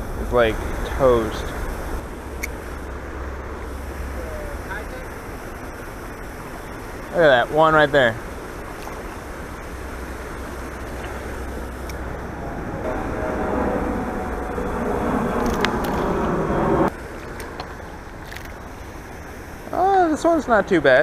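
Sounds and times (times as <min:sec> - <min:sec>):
jet airliner passing overhead: 0:00.0 - 0:19.7.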